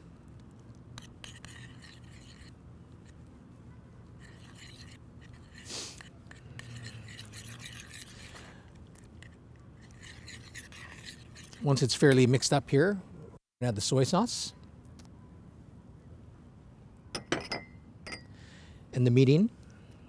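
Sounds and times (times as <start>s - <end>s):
metal spoon scraping a saucepan: 1.0s - 2.5s, 4.2s - 8.4s, 9.2s - 12.2s.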